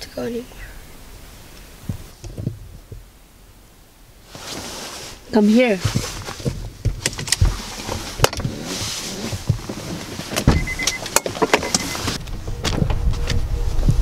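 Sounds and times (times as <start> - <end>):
rustling: 4.2 - 14.0
faint high beeping: 10.5 - 12.1.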